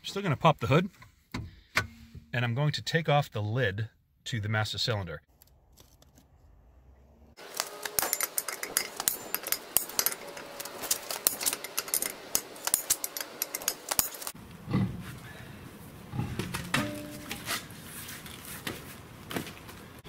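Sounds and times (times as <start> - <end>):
lug wrench clinking: 7.4 - 14.4.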